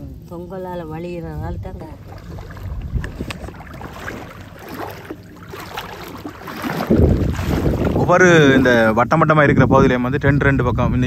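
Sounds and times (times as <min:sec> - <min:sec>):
wind rumble on microphone: 0:00.0 - 0:11.0
seawater sloshing and splashing: 0:01.8 - 0:09.0.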